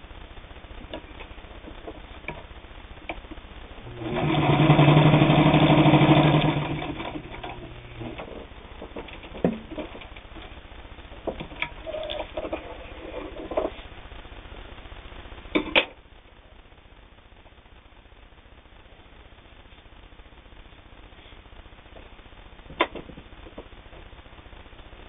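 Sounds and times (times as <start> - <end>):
sewing machine stitching leather: 3.9 - 8.5.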